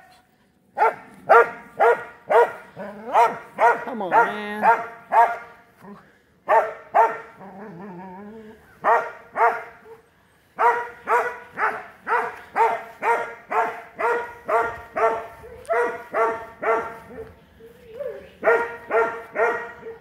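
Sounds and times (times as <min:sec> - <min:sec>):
dog barking: 0:00.8 - 0:05.6, 0:06.5 - 0:07.4, 0:08.8 - 0:10.0, 0:10.6 - 0:17.4, 0:18.0 - 0:20.0.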